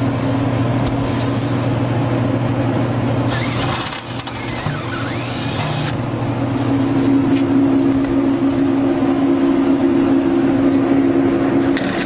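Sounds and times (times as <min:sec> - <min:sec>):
low mechanical hum: 0:00.0 - 0:12.0
power drill driving a screw: 0:03.3 - 0:06.0.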